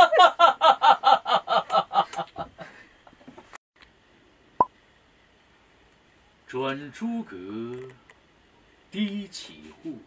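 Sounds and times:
man laughing maniacally: 0.0s - 2.8s.

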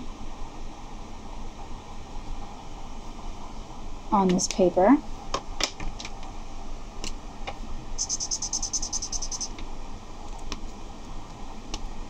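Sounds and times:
marker scribbling on paper: 8.0s - 9.5s.

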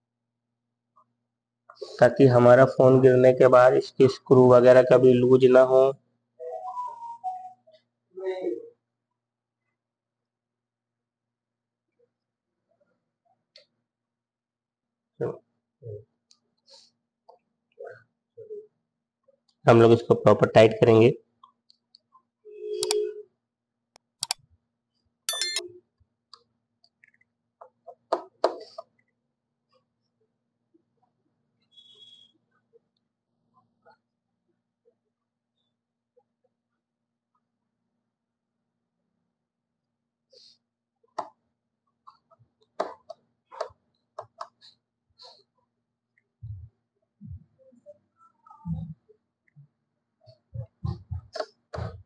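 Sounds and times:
precision screwdriver clicks: 25.3s - 25.6s
short ringing tones: 25.3s - 25.6s.

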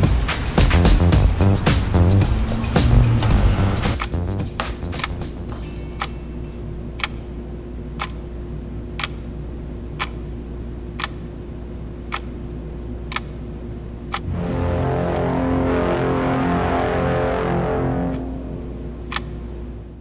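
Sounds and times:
music: 0.0s - 6.1s, 14.2s - 19.2s
clock ticking: 3.9s - 5.3s, 8.0s - 8.2s, 9.0s - 9.2s, 11.0s - 11.2s, 12.1s - 12.3s, 13.1s - 13.3s, 19.1s - 19.4s
low hum: 13.6s - 20.0s.

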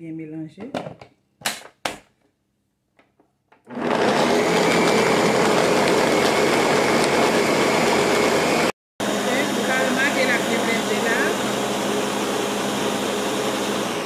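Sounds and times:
blender whirring: 3.6s - 14.0s.

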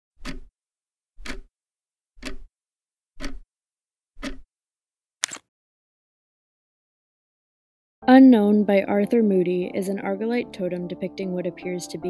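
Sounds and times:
clock ticking: 0.2s - 0.5s, 1.2s - 1.5s, 2.2s - 2.5s, 3.2s - 3.5s, 4.2s - 4.5s.

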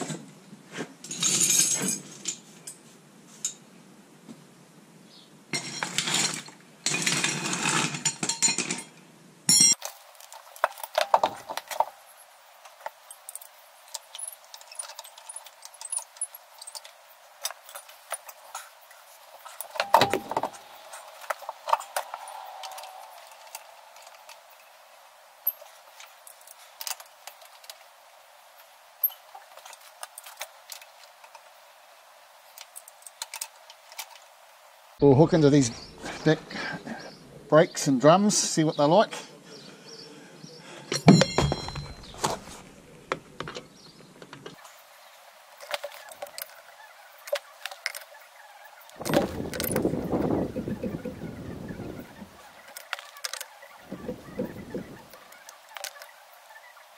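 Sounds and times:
metal tools clinking and knocking: 1.0s - 2.8s, 5.6s - 8.9s, 9.5s - 12.0s, 12.8s - 18.7s, 19.3s - 24.7s, 25.4s - 27.8s, 40.9s - 42.4s, 49.0s - 51.2s.

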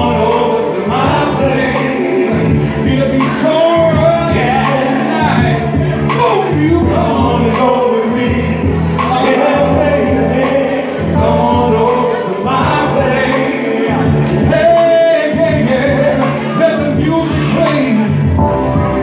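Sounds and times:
amplified music: 0.0s - 19.0s
male vocal group singing: 0.0s - 19.0s.

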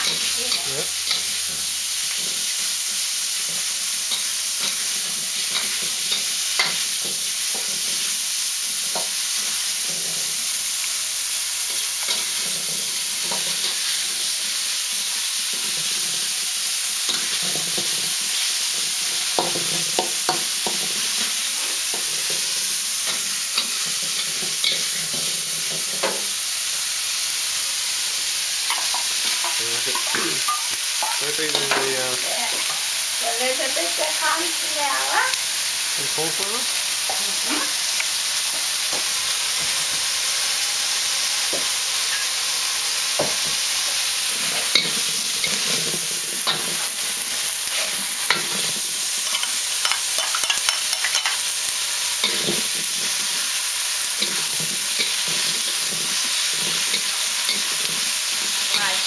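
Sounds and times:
beef sizzling in a wok: 0.0s - 59.0s.

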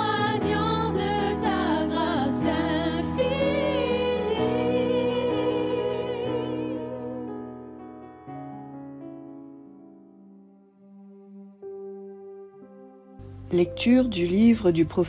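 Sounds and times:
person singing with vibrato: 0.0s - 7.4s
sustained accompaniment: 0.0s - 7.6s.

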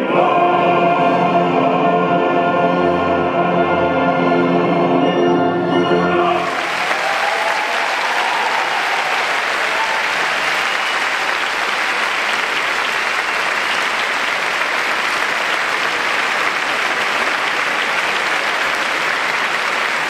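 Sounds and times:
audience applauding: 6.4s - 20.0s.

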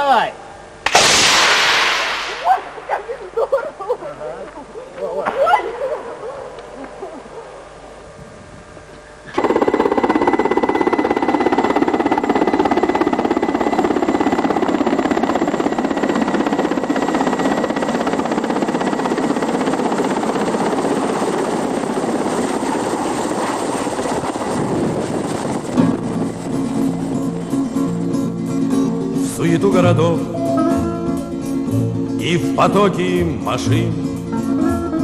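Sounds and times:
helicopter rotor and turbine: 8.3s - 29.3s.

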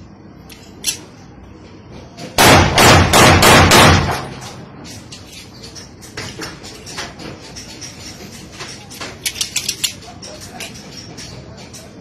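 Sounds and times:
pistol shots: 2.4s - 4.3s.

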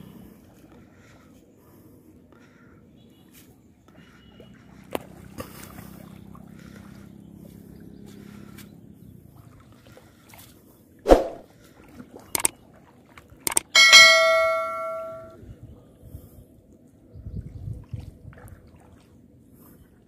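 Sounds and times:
sharp pop: 11.1s - 11.4s
mouse clicks: 13.5s - 13.7s
bell-like notification ding: 13.7s - 15.4s.

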